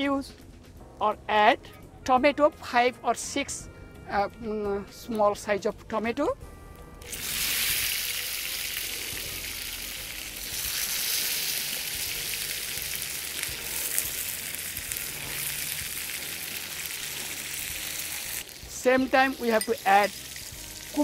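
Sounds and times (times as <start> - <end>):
tomatoes sizzling in hot oil: 7.0 - 21.0.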